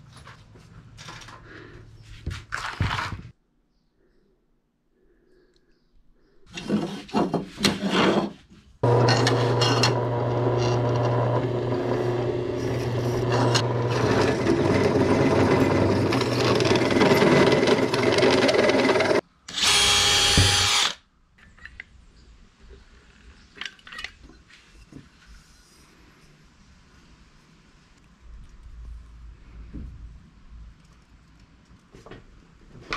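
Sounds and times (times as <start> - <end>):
drill press motor humming: 8.8 - 21.0
power tool burst: 18.8 - 21.0.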